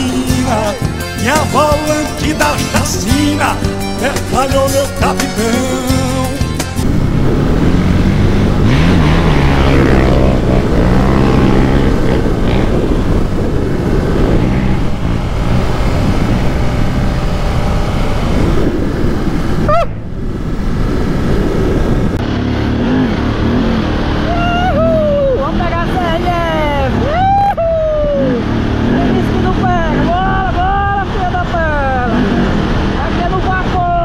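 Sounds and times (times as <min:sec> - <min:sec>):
off-road motorcycle engine revving: 0:00.0 - 0:27.3, 0:27.9 - 0:34.0
quick rising whine: 0:06.6 - 0:24.9.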